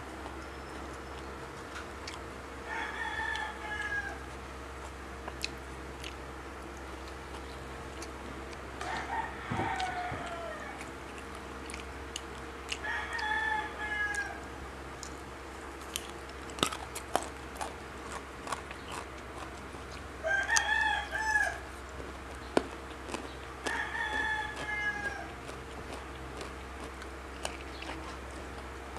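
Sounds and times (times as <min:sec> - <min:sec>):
rooster crowing: 0:02.6 - 0:04.4, 0:08.8 - 0:10.9, 0:12.7 - 0:14.6, 0:20.2 - 0:21.7, 0:23.6 - 0:25.6
clicks and taps handling food: 0:21.8 - 0:28.7.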